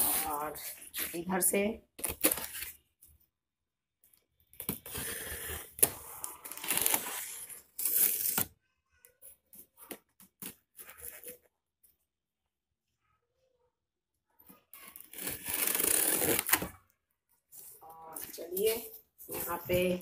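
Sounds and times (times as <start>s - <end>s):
knife cutting packing tape: 4.8s - 8.5s, 14.9s - 16.7s.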